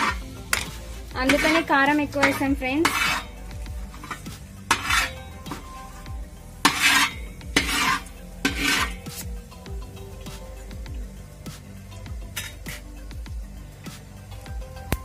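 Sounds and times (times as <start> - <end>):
ladle scraping metal pot: 0.0 - 9.3, 12.3 - 12.9
spices sizzling in oil: 0.0 - 15.0.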